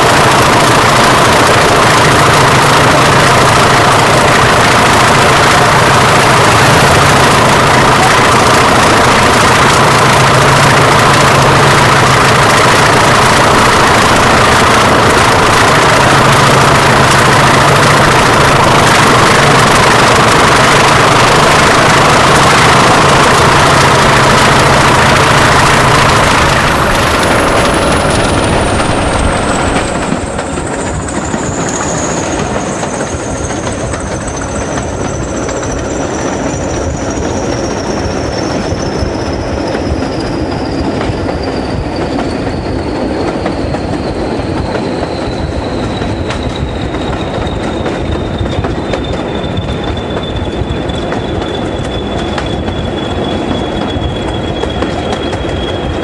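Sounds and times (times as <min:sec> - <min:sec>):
diesel locomotive engines: 0:00.0 - 0:56.0
high thin whistle: 0:39.9 - 0:56.0.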